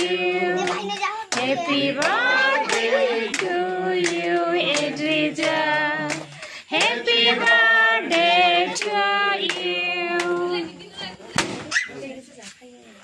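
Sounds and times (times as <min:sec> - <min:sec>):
women and children singing: 0:00.0 - 0:11.6
hands clapping: 0:00.6 - 0:10.4.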